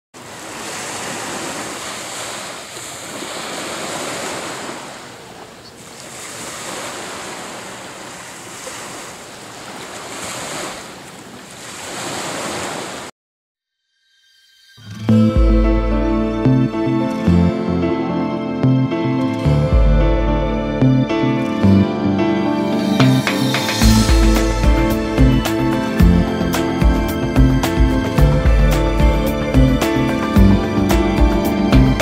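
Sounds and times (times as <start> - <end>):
small waves lapping on beach: 0.2 - 13.1.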